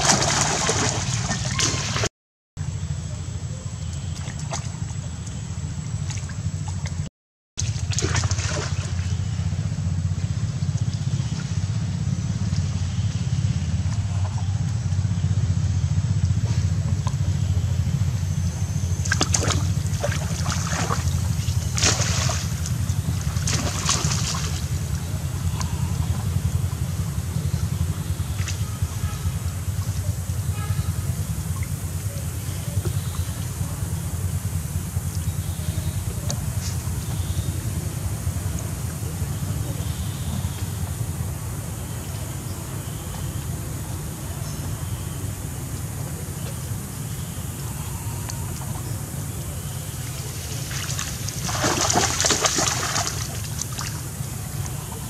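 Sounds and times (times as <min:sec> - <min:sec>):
water sloshing and splashing: 0:00.0 - 0:02.1, 0:04.0 - 0:09.4, 0:19.0 - 0:26.4, 0:48.2 - 0:55.0
steady low rumble: 0:00.0 - 0:55.0.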